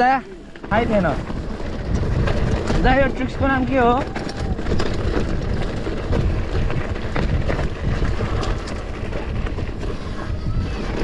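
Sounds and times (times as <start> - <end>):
bike clicks and rattles: 0.0 - 11.0
mountain bike rolling over dirt: 0.0 - 11.0
wind rumbling on microphone: 0.0 - 11.0.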